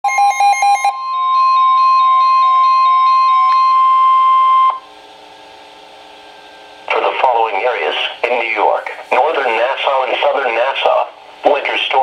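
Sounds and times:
steady warning alarm tone: 0.0s - 5.3s
rapid beeping: 0.1s - 4.8s.

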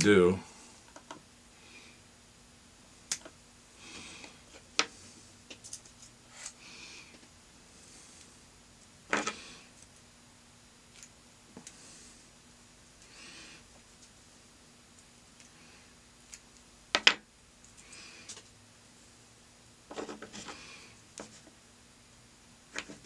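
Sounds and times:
faint steady hum: 0.0s - 23.0s
soft rustles of materials: 3.8s - 10.1s.

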